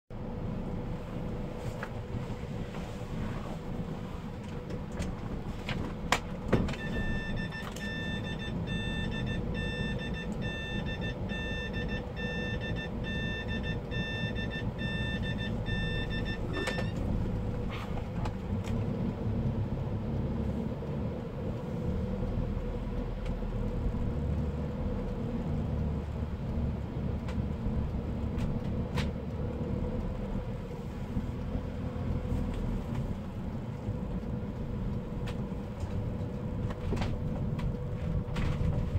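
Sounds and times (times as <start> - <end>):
car engine and tyres rumbling: 0.1 - 38.9
car warning chime beeping: 6.7 - 17.5.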